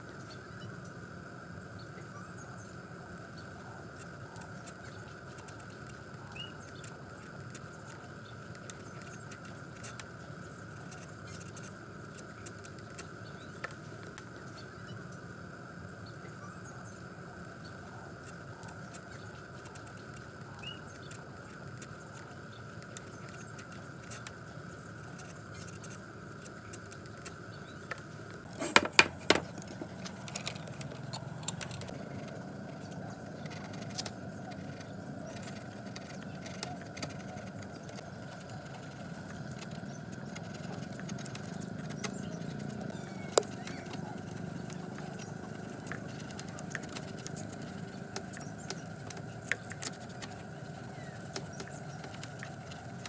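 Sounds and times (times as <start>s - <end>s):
background hum: 0.0s - 53.0s
chisel paring wood: 28.5s - 29.9s.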